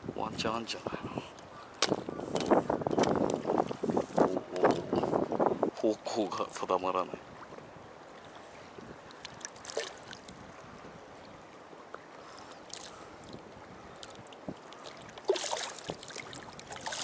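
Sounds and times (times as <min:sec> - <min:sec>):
waves lapping against hull: 0:00.0 - 0:17.0
water splashing: 0:08.0 - 0:10.7, 0:12.2 - 0:17.0.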